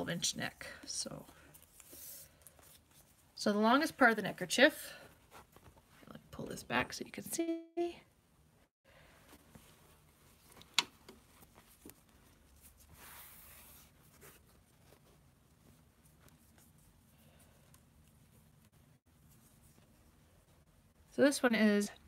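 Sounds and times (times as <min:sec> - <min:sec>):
fabric rustling: 0:04.4 - 0:06.2, 0:09.1 - 0:21.1.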